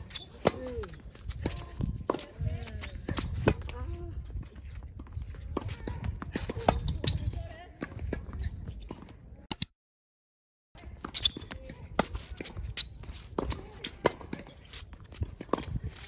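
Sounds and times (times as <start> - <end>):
tennis ball bouncing on court: 5.0 - 9.2, 11.0 - 14.6.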